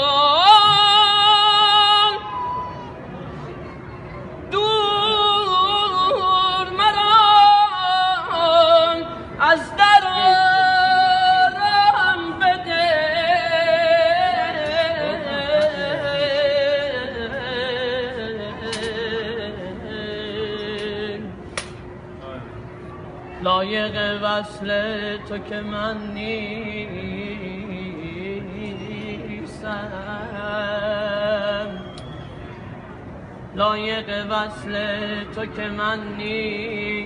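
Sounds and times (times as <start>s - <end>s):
man singing devotional chant: 33.6s - 37.0s.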